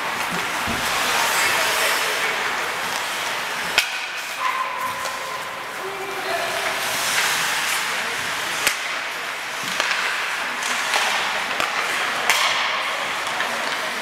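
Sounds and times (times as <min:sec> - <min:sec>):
hockey sticks and puck clacking: 0:00.1 - 0:05.8, 0:06.5 - 0:14.0
skate blades scraping ice: 0:06.5 - 0:14.0.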